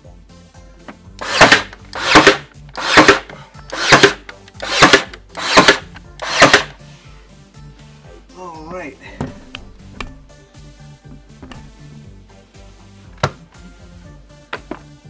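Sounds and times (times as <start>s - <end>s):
nail gun shots: 1.2s - 6.8s.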